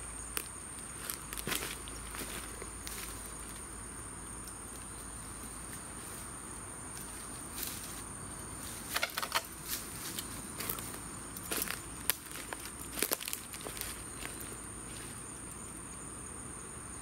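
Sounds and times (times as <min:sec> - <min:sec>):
high insect trill: 0:00.0 - 0:17.0
dry leaf litter crackling: 0:00.3 - 0:03.7, 0:07.0 - 0:15.6.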